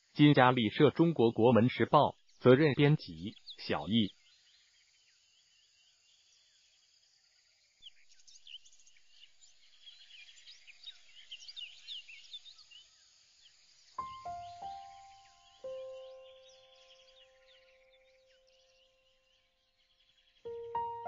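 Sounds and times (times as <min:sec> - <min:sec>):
birds chirping: 0:00.0 - 0:04.4, 0:13.8 - 0:21.0
background music: 0:14.0 - 0:18.2, 0:20.5 - 0:21.0.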